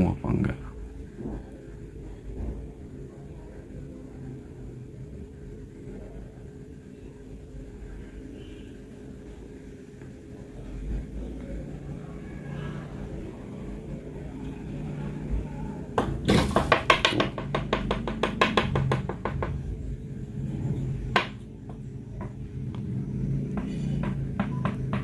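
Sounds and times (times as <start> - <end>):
stick tapping on aquarium glass: 16.7 - 19.6.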